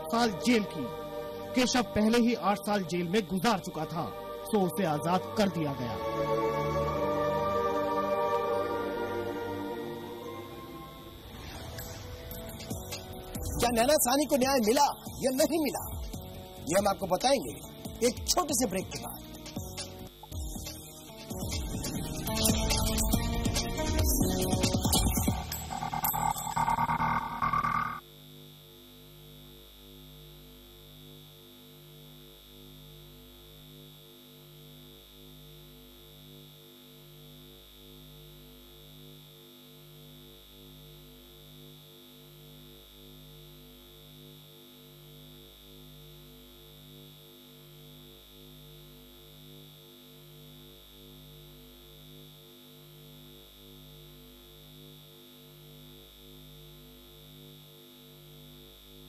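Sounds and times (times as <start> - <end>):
steady high whine: 0.0 - 59.0
low pulsing electronic tones: 8.9 - 28.0.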